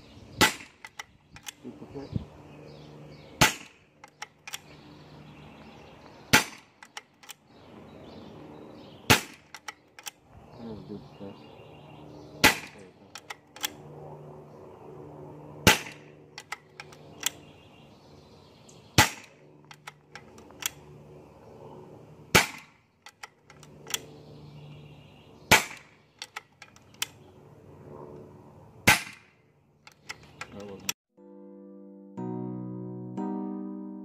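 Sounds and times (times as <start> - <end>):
air rifle shots: 0.4 - 1.6, 3.4 - 4.7, 6.3 - 7.4, 9.1 - 10.2, 12.4 - 13.8, 15.6 - 17.4, 19.0 - 20.8, 22.3 - 24.1, 25.5 - 27.2, 28.8 - 30.9
light clicks: 0.8 - 1.6, 13.1 - 13.8, 16.4 - 17.4, 19.6 - 20.8, 23.0 - 24.1, 26.1 - 27.2, 29.8 - 31.0.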